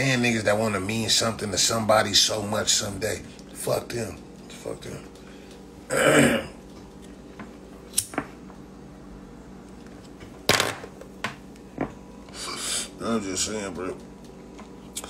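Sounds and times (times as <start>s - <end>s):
man's throaty vocal noise: 5.9s - 6.6s.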